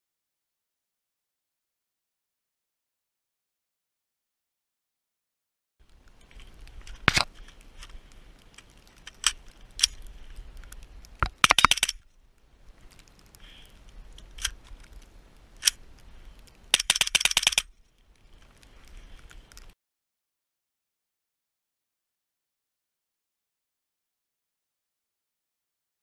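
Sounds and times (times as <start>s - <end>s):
suppressed gunshots: 11.2s - 12.0s, 16.7s - 17.7s.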